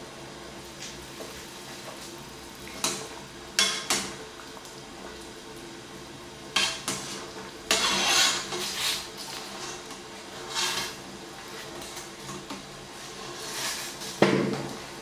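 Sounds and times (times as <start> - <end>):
strainer sloshing in boiling water: 0.0 - 15.0.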